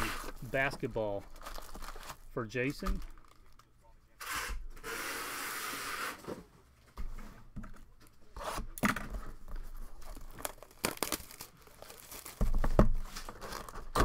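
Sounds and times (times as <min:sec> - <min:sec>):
plastic crackling and rustling: 0:00.1 - 0:03.7, 0:09.5 - 0:14.0
shrink-wrap tearing: 0:01.3 - 0:02.2, 0:10.0 - 0:14.0.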